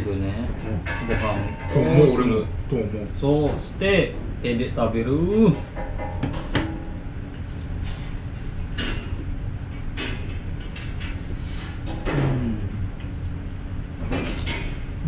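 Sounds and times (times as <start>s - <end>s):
low room hum: 0.0s - 15.0s
low vocal murmur: 12.0s - 13.0s.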